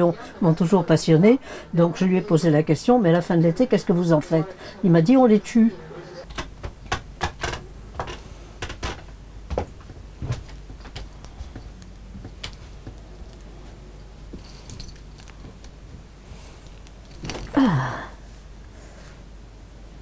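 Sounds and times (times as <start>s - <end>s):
light clicks and knocks of objects: 6.3s - 17.5s
woman's short falling sigh: 17.5s - 18.2s.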